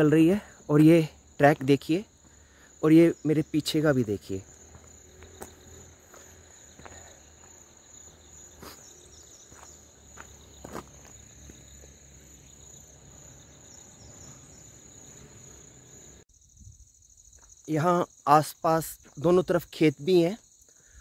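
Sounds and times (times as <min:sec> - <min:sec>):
crickets trilling: 0:00.0 - 0:21.0
footsteps on dirt: 0:04.4 - 0:12.7.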